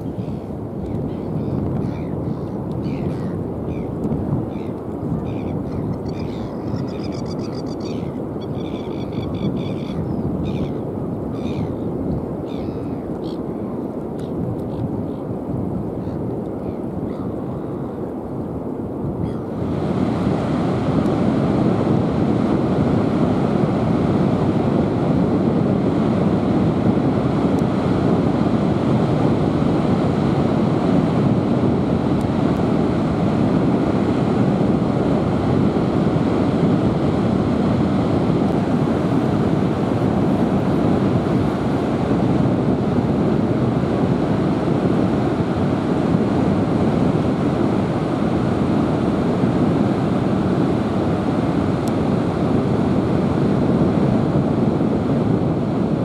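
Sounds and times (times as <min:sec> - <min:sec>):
wind on microphone: 0:00.0 - 0:56.0
ocean surf breaking: 0:19.5 - 0:56.0.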